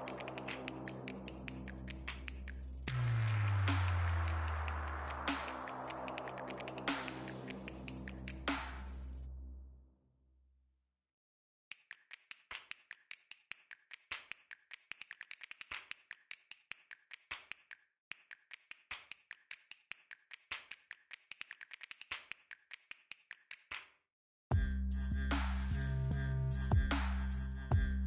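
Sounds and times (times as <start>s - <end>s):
heavy bass beat: 0.0s - 9.4s, 24.5s - 28.0s
sharp finger-snap clicks and taps: 11.7s - 23.9s.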